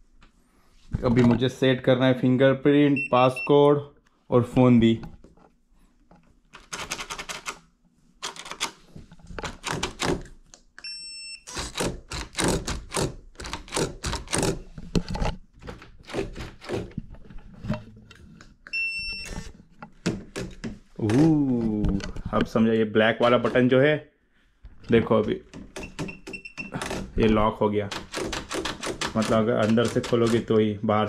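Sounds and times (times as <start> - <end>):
door lock clicking and clacking: 11.5 - 14.6, 25.2 - 27.2, 27.9 - 30.5.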